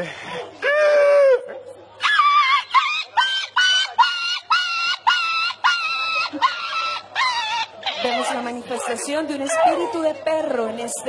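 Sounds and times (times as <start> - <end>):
man making dog-like yelps: 2.0 - 8.3.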